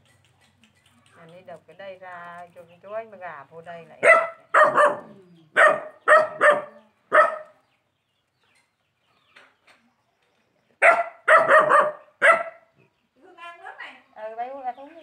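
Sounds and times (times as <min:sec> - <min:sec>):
dog barking: 0:04.0 - 0:07.6, 0:10.8 - 0:12.7.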